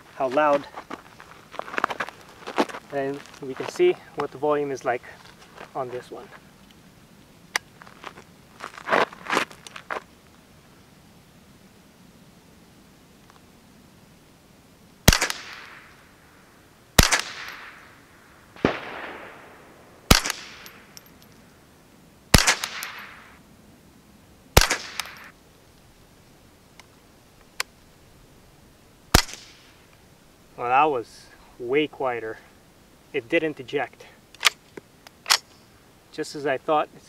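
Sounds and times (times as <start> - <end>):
quiet rifle shot: 15.0 - 16.1, 17.0 - 21.2, 22.3 - 23.4, 24.6 - 25.4, 29.1 - 29.8
rifle shots with echo: 15.1 - 15.9, 17.0 - 17.9, 18.6 - 21.0, 22.3 - 23.3, 24.6 - 25.3, 29.1 - 29.7.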